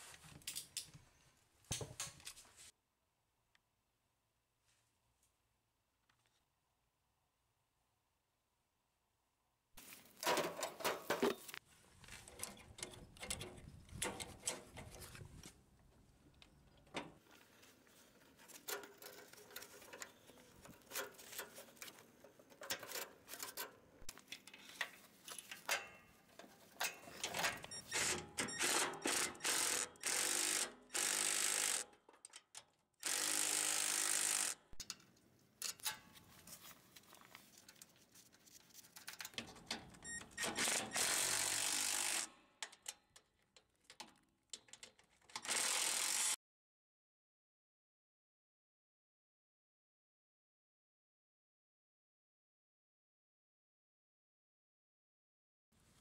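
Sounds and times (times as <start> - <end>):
power tool bursts: 27.9 - 31.9, 33.0 - 34.6, 40.4 - 42.3, 45.4 - 46.4.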